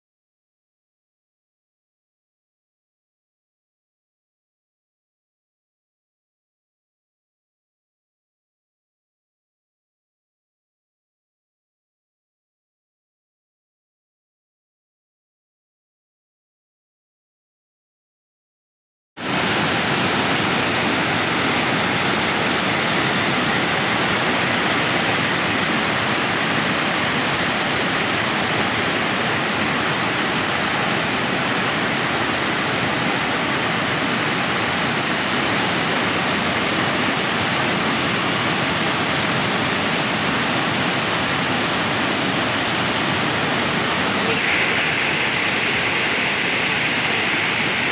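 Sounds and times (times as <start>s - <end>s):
waterfall rushing over rock: 19.2s - 47.9s.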